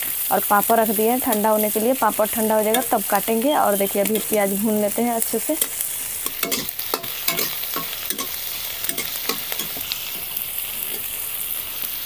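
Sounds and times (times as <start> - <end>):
onion sizzling in oil: 0.0 - 12.0
utensil scraping a pan: 5.6 - 11.2.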